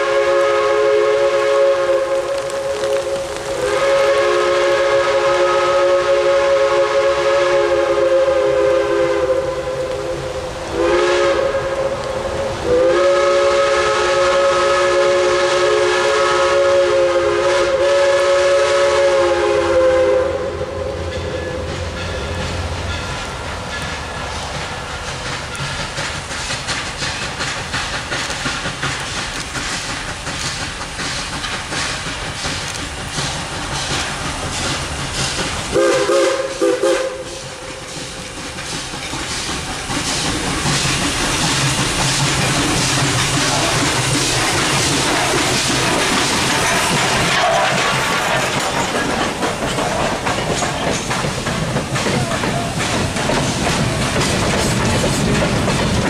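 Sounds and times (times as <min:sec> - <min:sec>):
steam whistle: 0:00.0 - 0:22.4, 0:35.7 - 0:37.8, 0:42.5 - 0:47.9
locomotive exhaust chuffs: 0:00.0 - 0:56.0
steam hiss: 0:00.0 - 0:56.0.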